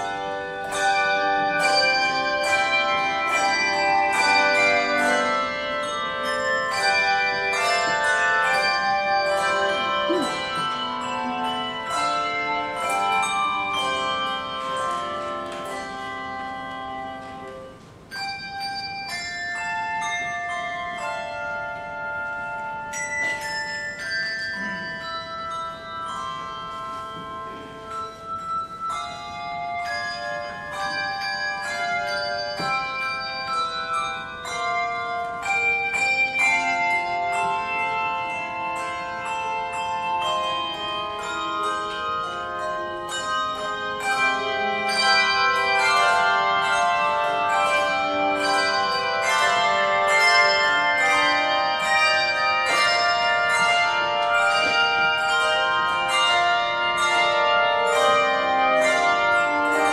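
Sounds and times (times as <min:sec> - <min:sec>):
handbell choir playing hymn: 0:00.0 - 0:59.9.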